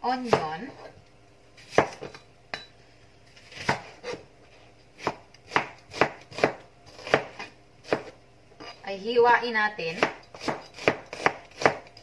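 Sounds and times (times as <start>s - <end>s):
knife chopping onion on board: 0.1s - 0.8s, 1.6s - 2.2s, 3.5s - 4.2s, 5.0s - 8.8s, 9.9s - 12.0s.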